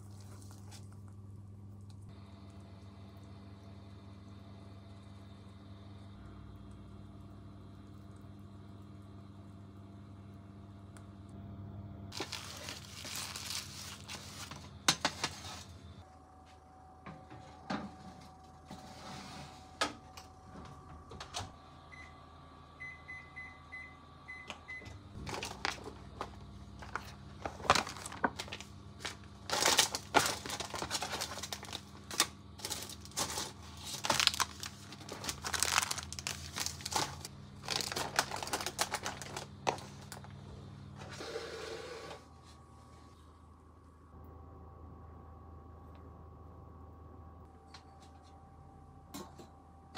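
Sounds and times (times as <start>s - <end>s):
plastic packages crinkling: 12.1s - 15.4s, 25.2s - 40.4s.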